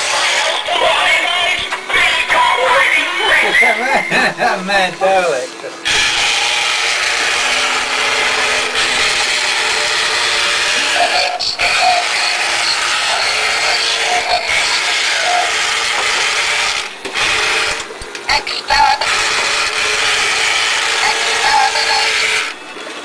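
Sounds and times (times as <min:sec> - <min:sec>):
toy motor and gears whirring: 0:05.8 - 0:22.9.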